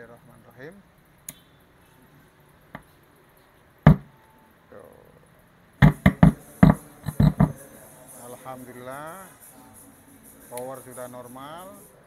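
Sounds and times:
loud thump from speaker: 3.9s - 4.1s, 5.8s - 7.6s
sharp knocks from speaker: 3.9s - 4.1s, 5.8s - 7.6s.

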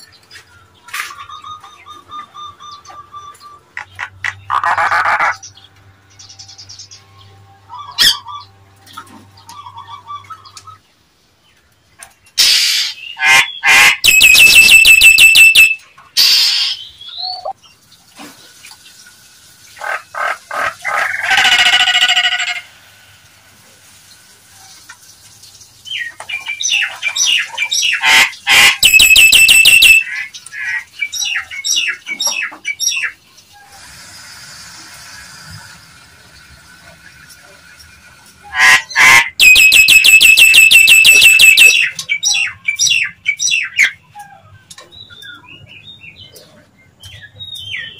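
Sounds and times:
myna whistles and rasping calls: 12.4s - 17.6s, 26.6s - 30.2s, 38.5s - 44.0s
quiet bird chatter: 36.2s - 47.9s.

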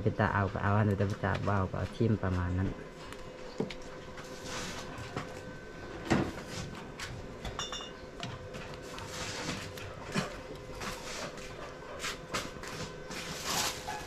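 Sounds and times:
high clink: 7.6s - 8.0s.

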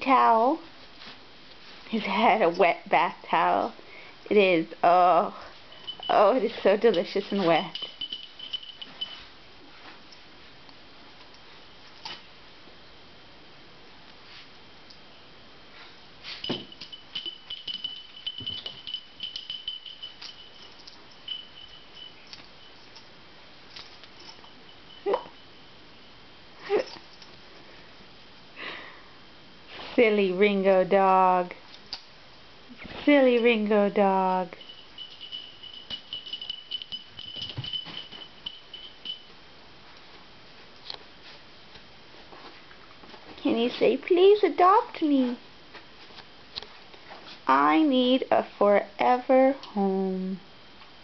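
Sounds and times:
thin high tone: 5.4s - 9.4s, 16.2s - 27.3s, 33.3s - 39.4s
dog collar tags jingling: 5.7s - 9.3s, 16.3s - 25.6s, 26.6s - 27.4s, 34.3s - 39.3s.

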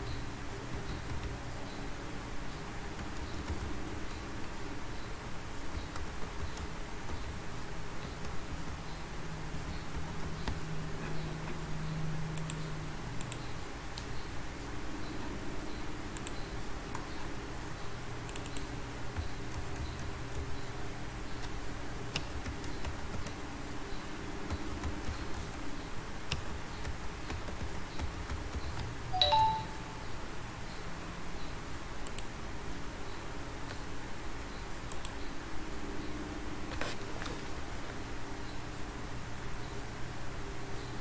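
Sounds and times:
low room hum: 0.0s - 41.0s
keyboard clicks: 0.7s - 1.8s, 2.9s - 4.4s, 5.7s - 9.0s, 9.6s - 11.3s, 12.3s - 14.2s, 16.1s - 17.2s, 18.2s - 20.6s, 21.3s - 23.4s, 24.4s - 29.8s, 32.0s - 32.3s, 34.9s - 35.2s
computer mouse clicks: 5.7s - 7.4s, 12.3s - 14.3s, 16.1s - 17.2s, 18.2s - 20.6s, 32.0s - 32.3s, 34.9s - 35.2s
short pitched beep: 29.2s - 29.9s.

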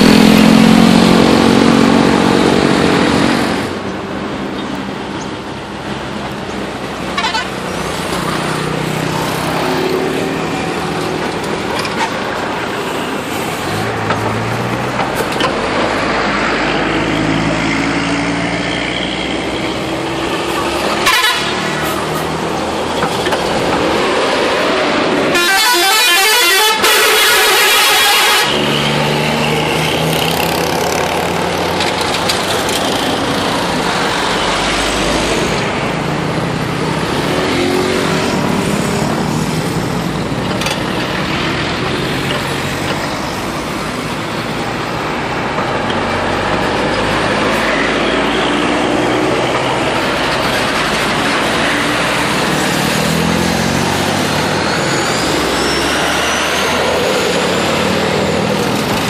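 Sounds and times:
buses passing: 0.0s - 59.0s
musical bus horns: 7.0s - 7.7s, 20.6s - 22.3s, 25.2s - 29.0s.

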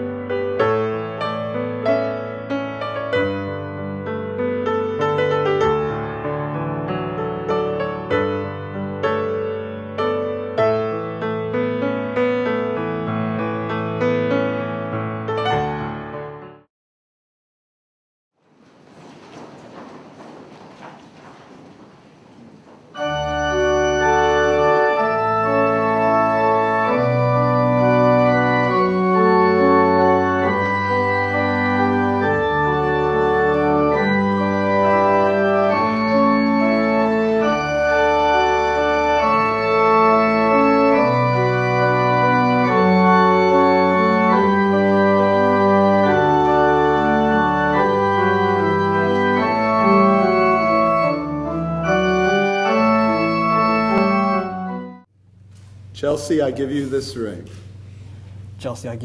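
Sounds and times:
organ playing held chords: 22.4s - 55.1s.

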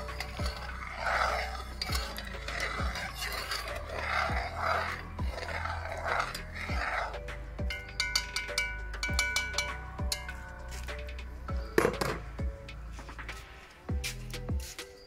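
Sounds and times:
metal spoon scraping a pot: 0.0s - 12.4s
music with a steady beat: 7.2s - 15.0s.

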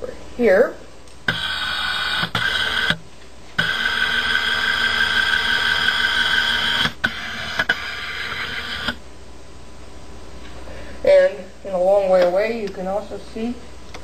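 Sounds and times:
small electric motor whirring: 1.3s - 3.0s, 3.6s - 9.0s
motor start and stop clicks: 3.6s - 9.0s.

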